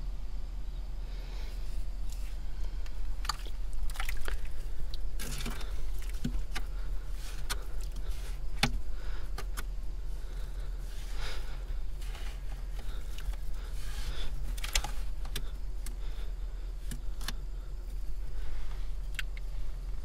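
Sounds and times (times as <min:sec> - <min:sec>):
hands digging in damp soil: 0:01.6 - 0:16.0.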